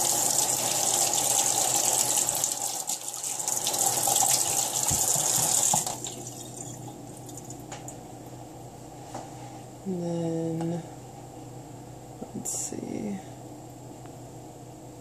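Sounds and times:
faucet running into metal sink: 0.0 - 7.6.

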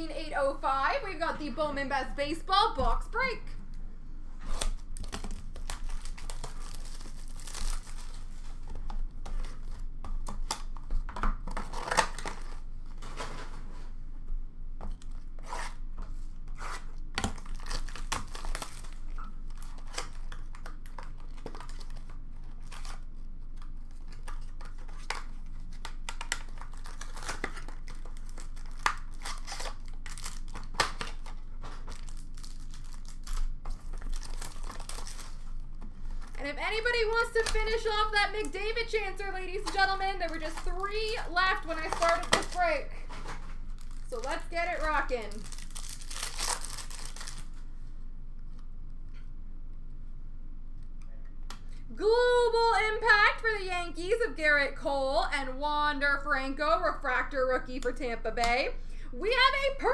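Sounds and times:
packaging crinkling and tearing: 4.4 - 13.6, 16.6 - 36.4, 37.2 - 47.6.

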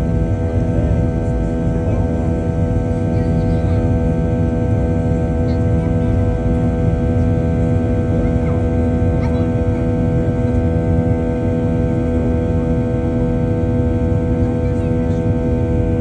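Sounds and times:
jet engines droning in cabin: 0.0 - 16.0.

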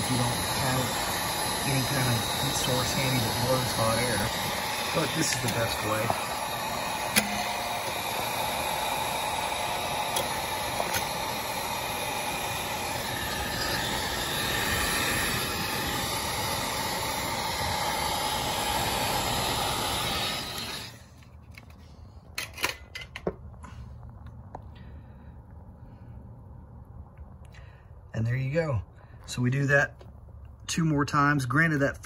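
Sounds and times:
heat gun blowing hot air: 0.0 - 21.1.

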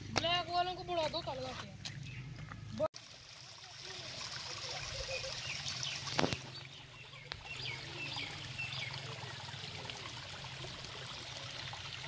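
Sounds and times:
stream flowing: 3.0 - 12.0.

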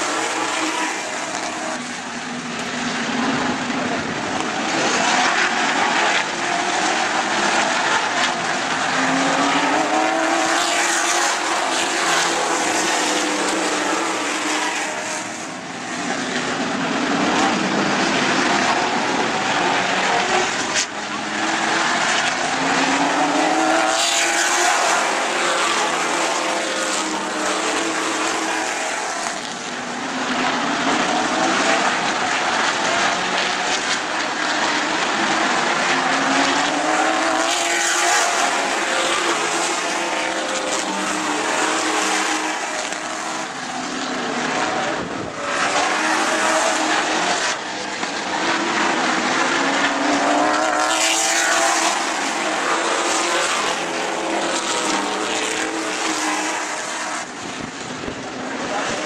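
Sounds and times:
racing car engines passing: 0.0 - 59.0.

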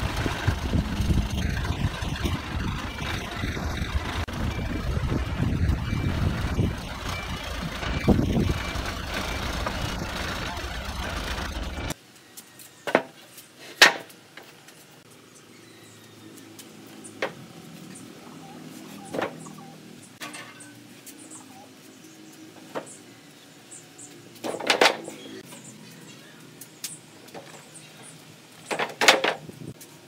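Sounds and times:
forklift engine running: 0.0 - 12.0.

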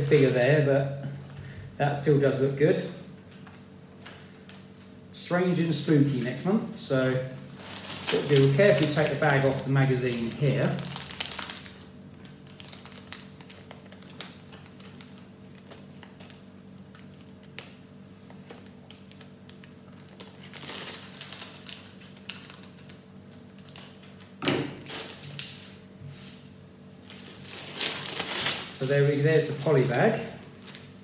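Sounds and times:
plastic and paper crinkling: 0.0 - 0.4, 7.0 - 26.4, 27.0 - 31.0
low steady hum: 0.0 - 31.0.

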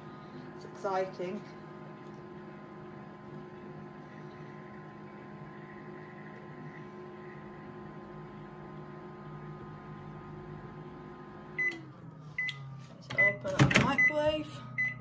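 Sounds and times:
microwave oven humming: 0.0 - 15.0
microwave beep: 11.2 - 15.0.

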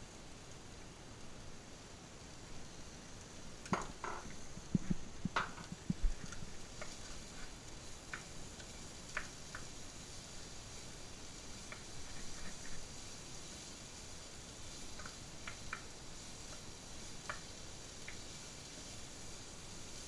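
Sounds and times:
faint steady hiss: 0.0 - 20.0
wooden spatula tapping frying pan: 3.6 - 9.8, 11.6 - 12.8, 14.9 - 18.4.

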